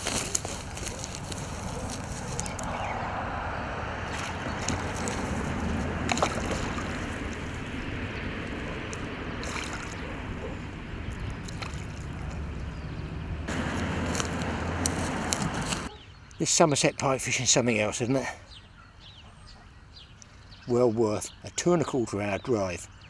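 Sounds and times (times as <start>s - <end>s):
fish splashing at surface: 4.0s - 7.8s, 9.4s - 10.1s, 11.1s - 12.4s.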